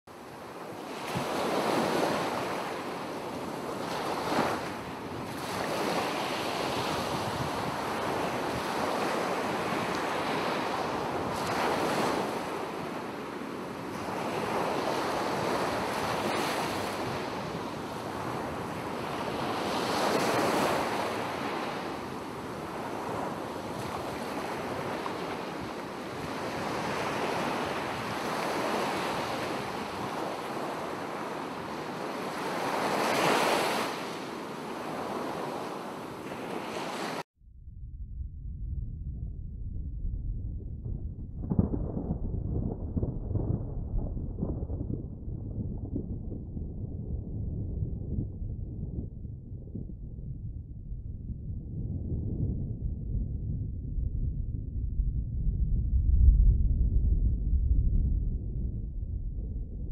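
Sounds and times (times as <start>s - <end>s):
waves washing onto beach: 0.2s - 37.3s.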